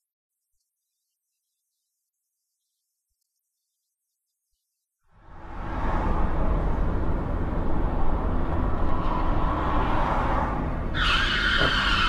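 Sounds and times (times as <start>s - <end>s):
car road and engine rumble: 5.2s - 12.0s
loud high-pitched squeal: 10.9s - 12.0s.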